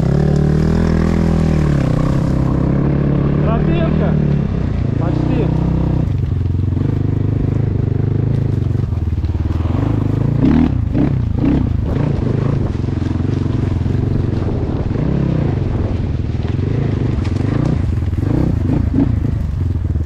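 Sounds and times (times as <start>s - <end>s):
vehicle engine running: 0.0s - 20.0s.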